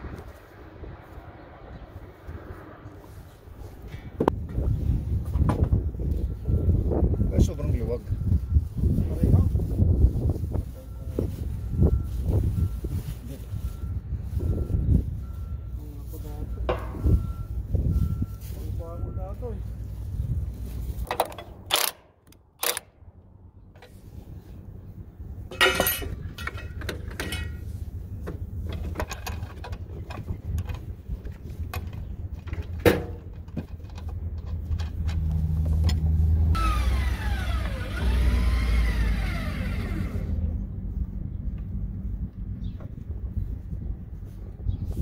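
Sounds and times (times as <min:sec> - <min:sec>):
steady low rumble: 0:00.0 - 0:45.0
wrench and bolts clinking: 0:25.5 - 0:27.6
sliding whines: 0:36.6 - 0:40.5.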